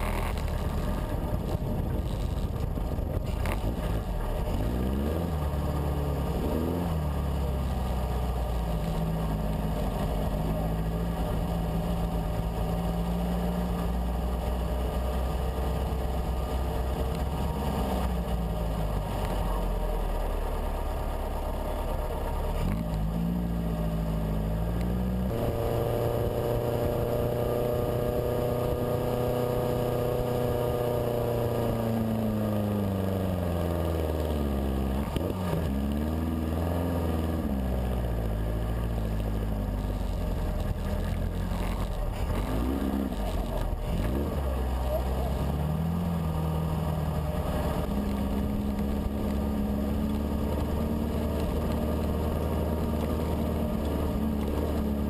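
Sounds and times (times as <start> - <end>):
wind on microphone: 0.0 - 4.8
dune buggy engine running: 0.0 - 55.0.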